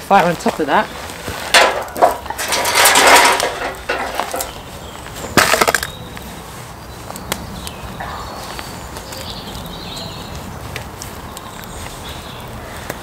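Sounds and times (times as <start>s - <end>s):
firewood knocking and scraping: 0.0s - 6.3s.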